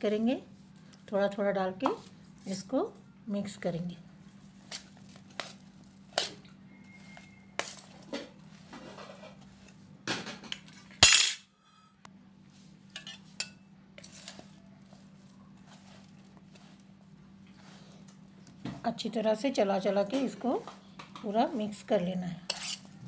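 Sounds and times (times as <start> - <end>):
spoon scraping a steel plate: 22.4 - 22.9.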